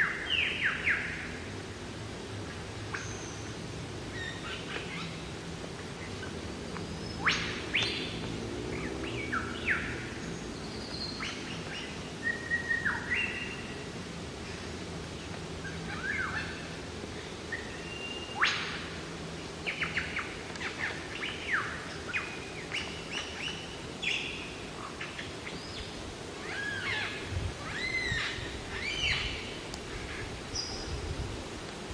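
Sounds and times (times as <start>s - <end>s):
lyrebird singing: 19.6s - 31.0s.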